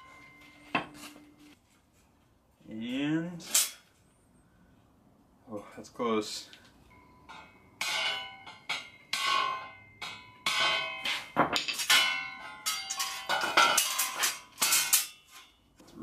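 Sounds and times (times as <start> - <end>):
hammer striking ringing steel tubing: 6.9 - 13.3.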